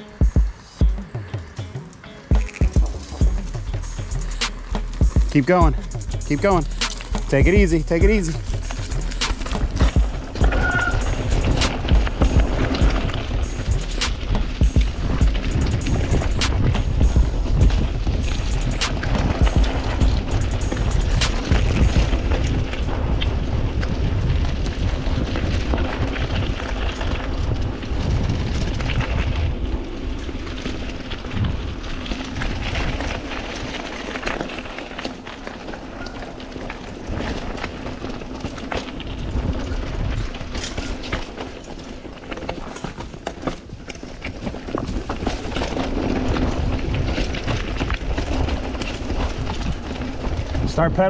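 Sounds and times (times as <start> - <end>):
heavy low rumble: 0.0 - 26.4
bike clicks and rattles: 0.0 - 51.0
tyres rolling on dirt and rock: 0.0 - 51.0
wind rumble on microphone: 3.1 - 51.0.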